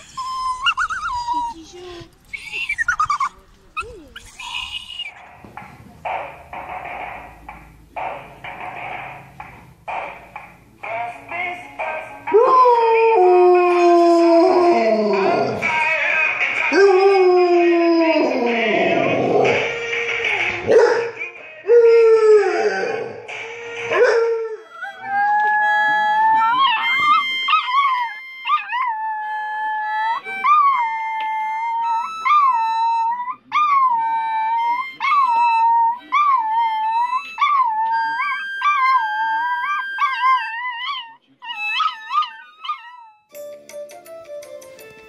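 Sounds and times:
music with held instrument notes: 0:23.1 - 0:40.6, 0:41.4 - 0:45.0
dog howling: 0:23.9 - 0:43.2.

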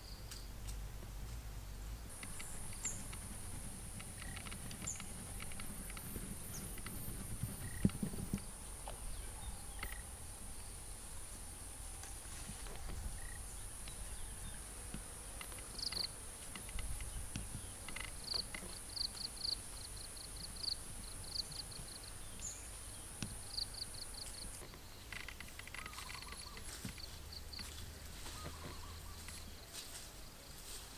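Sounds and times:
insects droning: 0:00.0 - 0:30.9
high chirps: 0:25.7 - 0:27.1.

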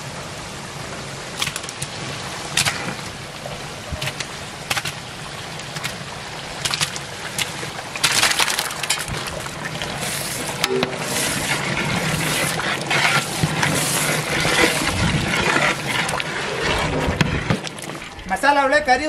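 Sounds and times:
oil spattering: 0:03.9 - 0:10.6.

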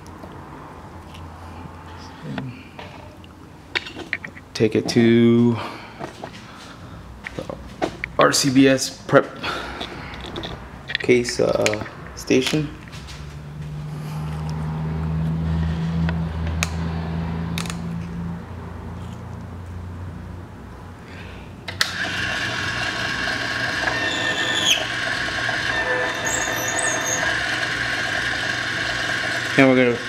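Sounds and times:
motor whining: 0:21.8 - 0:30.0
short falling squeal: 0:23.9 - 0:27.5.

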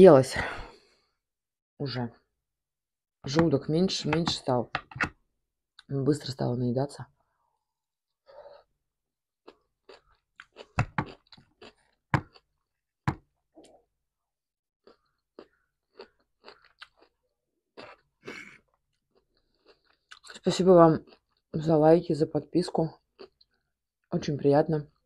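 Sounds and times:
wet chewing crunches: 0:09.4 - 0:12.5, 0:14.8 - 0:17.2.

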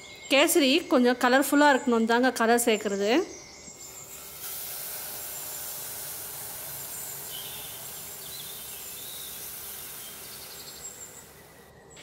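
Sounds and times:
water pouring and hissing in hot pan: 0:03.8 - 0:11.7.

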